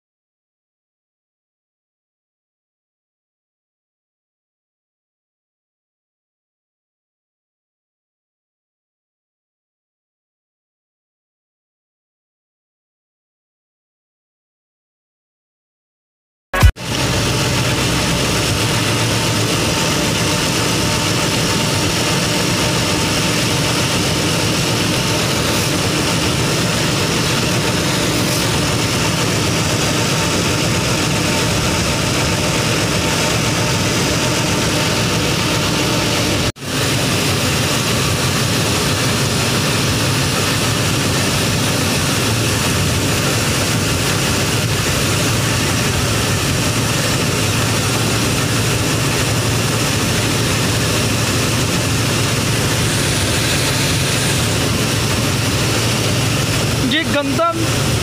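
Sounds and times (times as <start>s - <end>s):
auger emptying grain: 16.6s - 58.0s
combine harvester running: 16.6s - 58.0s.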